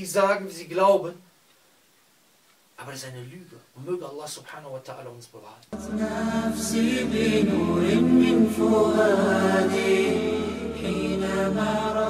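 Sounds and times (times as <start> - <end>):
person chanting unaccompanied: 5.7 - 12.0
steady low hum: 5.8 - 12.0.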